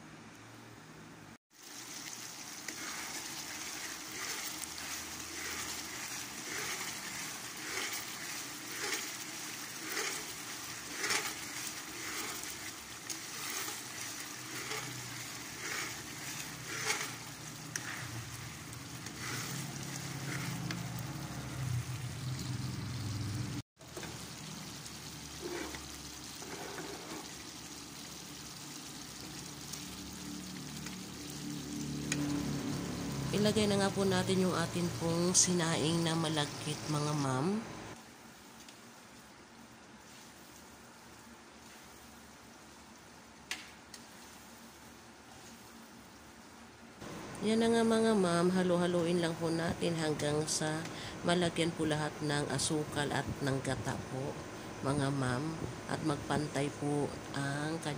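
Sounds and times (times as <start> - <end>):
liquid bubbling and sizzling in a wok: 1.4 - 37.0, 37.6 - 47.4
metal spatula scraping a wok: 2.7 - 21.0, 25.4 - 27.3.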